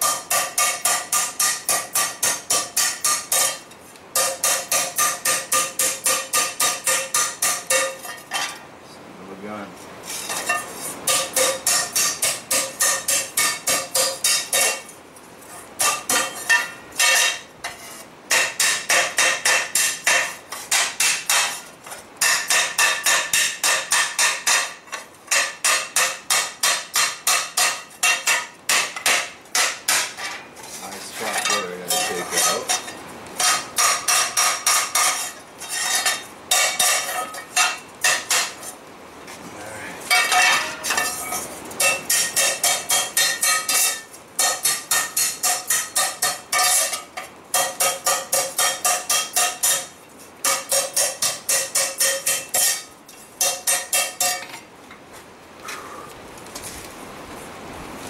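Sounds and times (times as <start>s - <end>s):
hammer ringing on metal: 0.0s - 3.6s, 4.2s - 8.0s, 22.2s - 30.2s, 41.8s - 54.5s.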